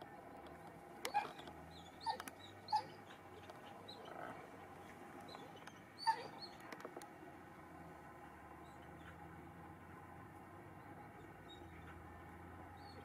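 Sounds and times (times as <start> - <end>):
dog yipping: 2.0 - 3.0, 6.0 - 6.5.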